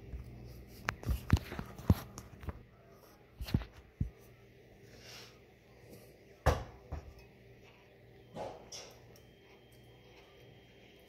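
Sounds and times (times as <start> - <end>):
knocks and thumps on a counter: 6.4 - 7.1.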